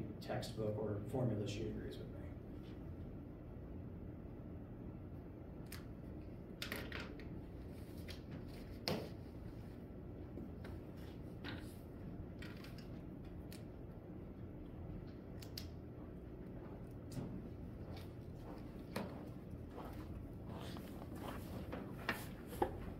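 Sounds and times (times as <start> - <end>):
low hum: 9.2 - 22.9
small clicks and taps: 15.0 - 15.8.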